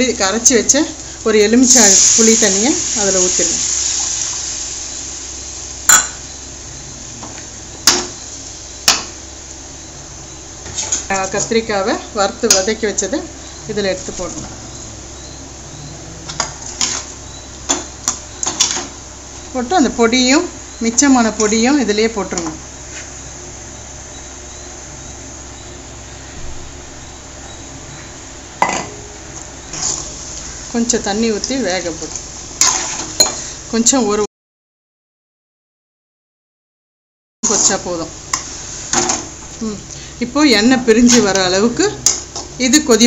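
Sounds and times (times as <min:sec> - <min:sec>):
stovetop hiss and hum: 0:00.0 - 0:34.3, 0:37.4 - 0:43.0
steady hiss: 0:00.9 - 0:10.5
metal bowl clinking on pan: 0:05.9 - 0:06.2, 0:28.6 - 0:29.0.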